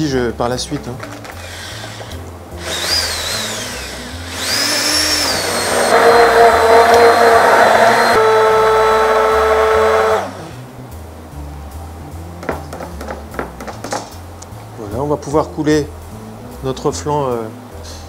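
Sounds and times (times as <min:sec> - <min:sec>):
immersion blender running: 0:01.4 - 0:10.6.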